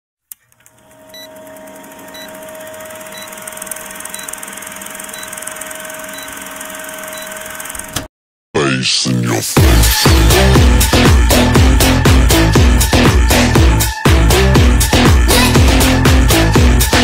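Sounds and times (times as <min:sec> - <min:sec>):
film projector humming: 0:00.5 - 0:08.0.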